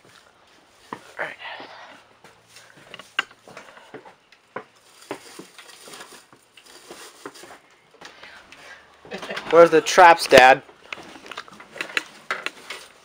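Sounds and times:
objects knocking and clicking: 10.4s - 13.0s.

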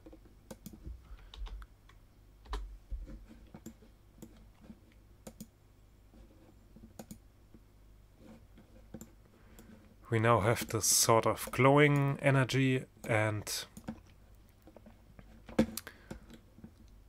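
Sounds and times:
computer mouse clicks: 0.1s - 2.6s, 3.5s - 5.5s, 6.9s - 7.2s.

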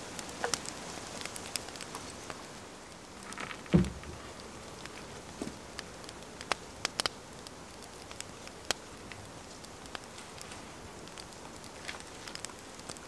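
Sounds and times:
faint hiss: 0.0s - 13.0s
dull knock: 3.7s - 4.1s.

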